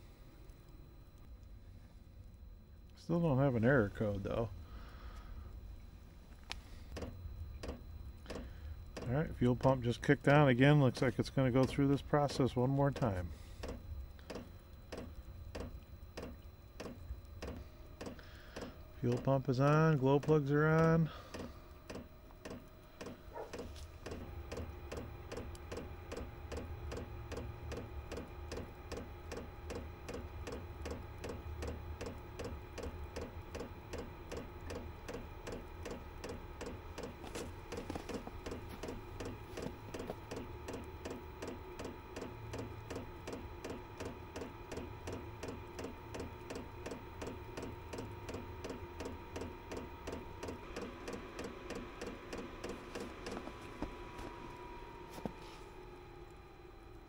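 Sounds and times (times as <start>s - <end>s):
combustion fan whine: 0.0s - 57.0s
fuel pump ticking: 21.3s - 53.6s.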